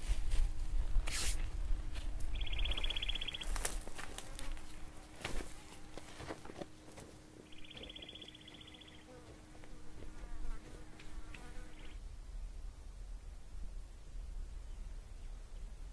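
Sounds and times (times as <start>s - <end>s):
insect buzzing trill: 2.3s - 4.5s, 7.5s - 9.3s, 10.2s - 12.0s.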